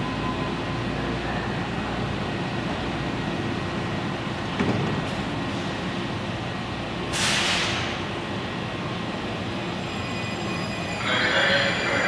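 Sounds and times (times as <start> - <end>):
train equipment running: 5.7 - 12.0
air brakes hissing: 7.1 - 8.0.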